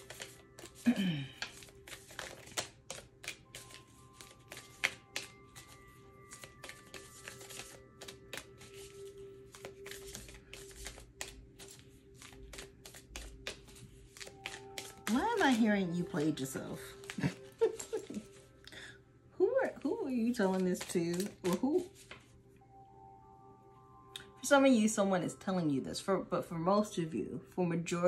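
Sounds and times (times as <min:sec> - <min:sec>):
cards being shuffled: 0:00.0 - 0:18.5, 0:20.2 - 0:22.3
faint steady background tones: 0:00.0 - 0:28.0.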